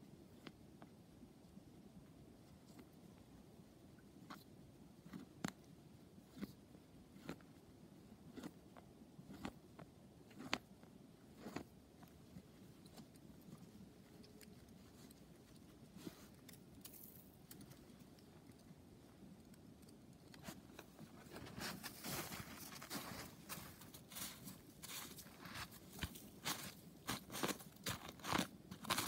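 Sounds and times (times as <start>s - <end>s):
footsteps crunching through snow: 21.2s - 29.0s.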